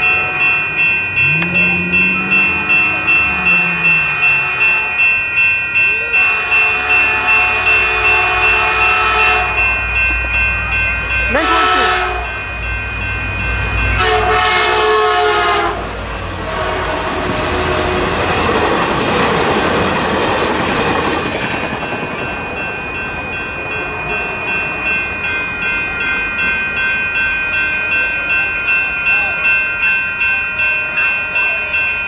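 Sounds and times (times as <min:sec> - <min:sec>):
crossing warning bells ringing: 0:00.0 - 0:32.0
train wheels rushing on rails: 0:00.0 - 0:32.0
train horn blast: 0:01.2 - 0:05.0, 0:06.2 - 0:09.6, 0:11.4 - 0:12.4, 0:14.0 - 0:18.2.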